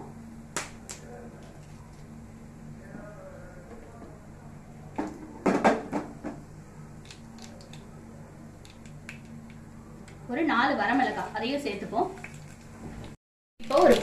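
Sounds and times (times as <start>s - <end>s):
seeds spluttering in hot oil: 13.6s - 14.0s.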